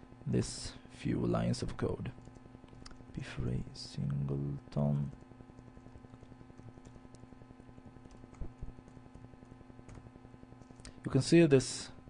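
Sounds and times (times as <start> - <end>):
low electrical hum: 0.0 - 12.0
computer keyboard typing: 5.0 - 7.2, 8.0 - 10.9.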